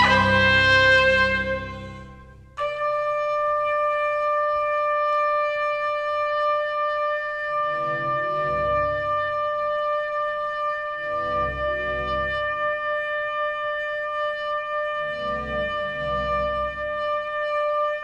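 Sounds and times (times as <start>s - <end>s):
low sustained ensemble tones: 0.0s - 2.7s
trumpet holding long notes: 0.0s - 18.0s.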